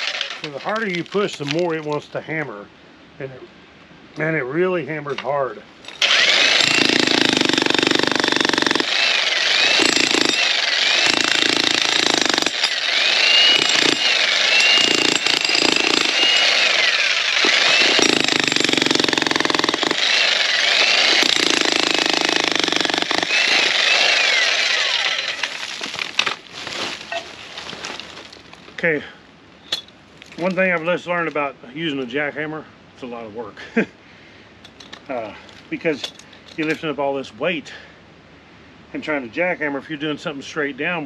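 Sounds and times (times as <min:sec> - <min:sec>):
jackhammer hammering rock: 0:05.9 - 0:25.8.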